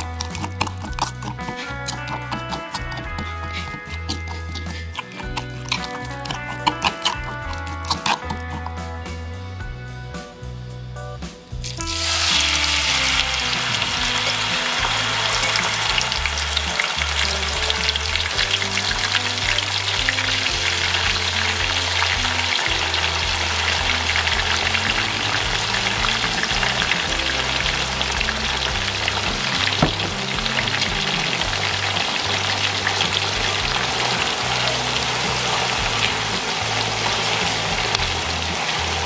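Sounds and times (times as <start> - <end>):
meat deep-frying in hot oil: 11.6 - 39.0.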